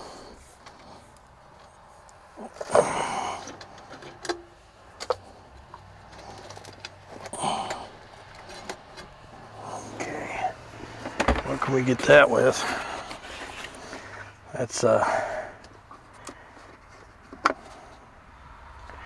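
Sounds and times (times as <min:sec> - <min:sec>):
man breathing out heavily: 0:00.0 - 0:01.2, 0:02.4 - 0:04.0, 0:07.1 - 0:08.6, 0:12.6 - 0:14.4, 0:15.0 - 0:16.7.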